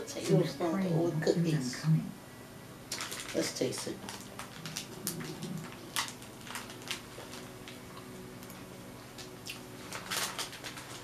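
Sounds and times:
biting and chewing crisp cookie: 2.9 - 11.0
plastic wrapper crinkling: 2.9 - 11.0.

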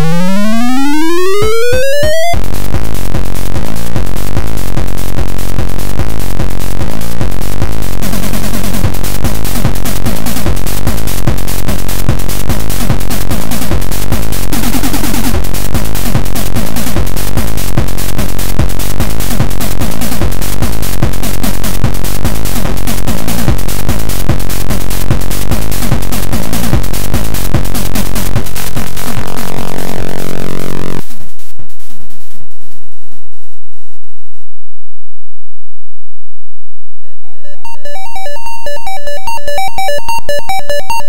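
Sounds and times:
square-wave chiptune tones: 0.0 - 2.4, 36.8 - 41.0.

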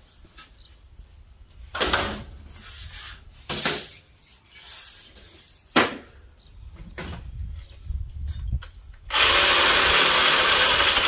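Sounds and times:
metal coil scraping on concrete: 2.4 - 5.7.

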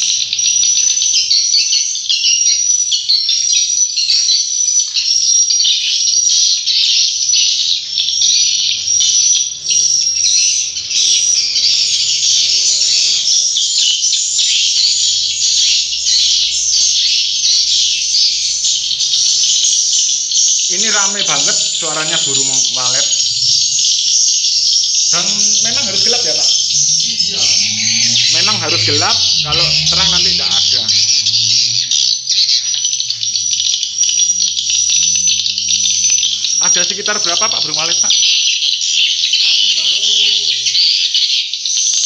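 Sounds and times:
swiftlets twittering chorus: 4.8 - 41.0.

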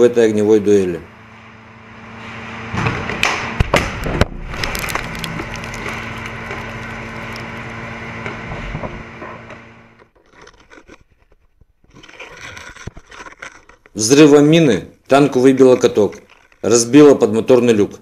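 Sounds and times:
tank machinery hum: 0.7 - 10.2.

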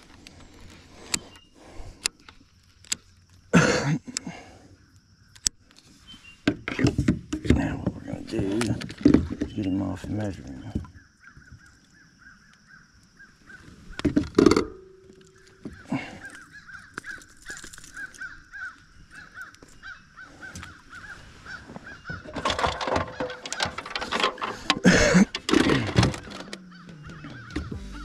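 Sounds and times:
fish clattering on kayak: 6.6 - 11.8, 14.0 - 18.7, 20.5 - 27.7.

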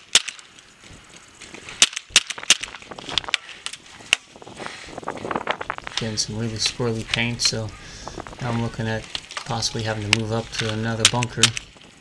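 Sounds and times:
paintball markers popping: 7.0 - 11.7.

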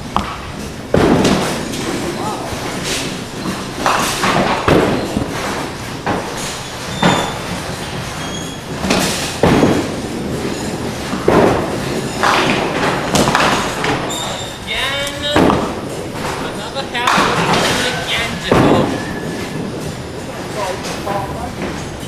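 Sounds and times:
bowling ball rolling on wooden lane: 0.0 - 14.7, 15.4 - 22.0
bowling pins clattering: 0.0 - 22.0
ball rumbling on return track: 8.8 - 20.6.

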